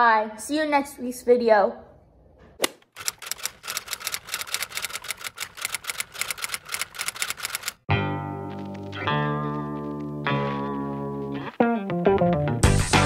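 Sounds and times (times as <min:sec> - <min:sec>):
music with guitar: 0:07.9 - 0:13.0.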